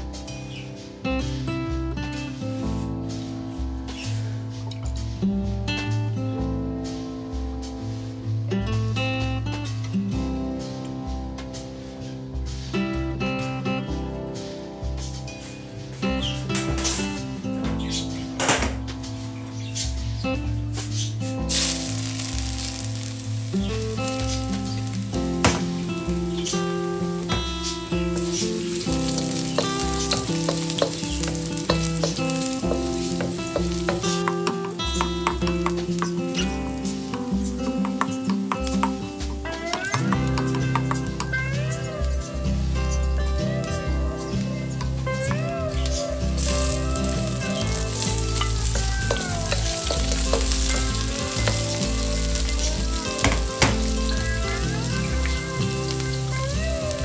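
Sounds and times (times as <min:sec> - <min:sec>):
background music: 0:00.0 - 0:57.0
ginger sizzling in hot oil: 0:19.2 - 0:57.0.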